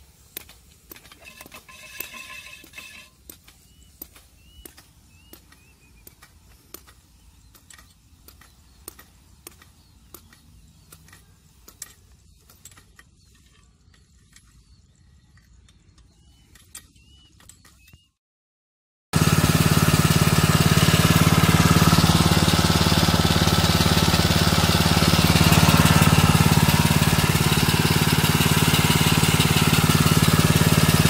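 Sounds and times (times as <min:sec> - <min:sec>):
hose reel clicking: 0:00.3 - 0:14.6.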